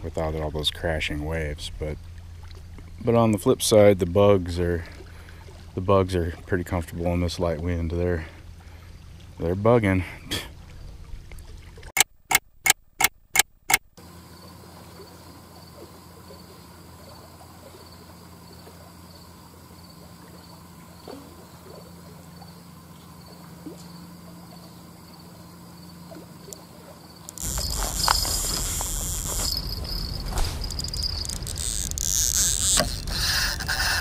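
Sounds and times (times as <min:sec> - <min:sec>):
faint wind and water: 0:00.0 - 0:13.1, 0:13.7 - 0:34.0
sharp clicks: 0:12.0 - 0:14.0
insect trilling: 0:14.3 - 0:34.0.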